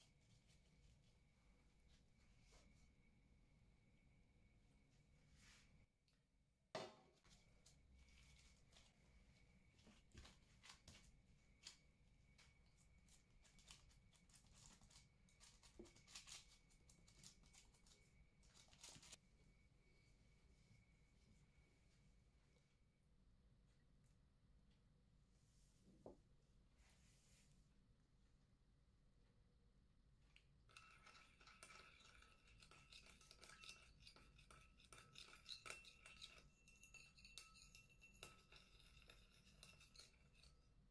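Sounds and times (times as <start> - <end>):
teaspoon stirring in glass bowl: 30.7 - 40.9.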